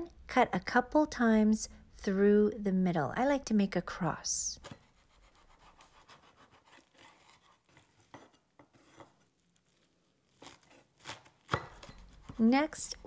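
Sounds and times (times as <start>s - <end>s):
knife cutting on wooden board: 4.6s - 9.3s, 10.3s - 12.5s.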